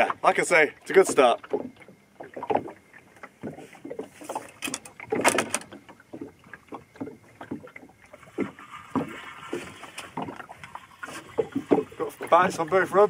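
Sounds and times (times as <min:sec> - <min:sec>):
water lapping against boat hull: 0:00.0 - 0:13.0.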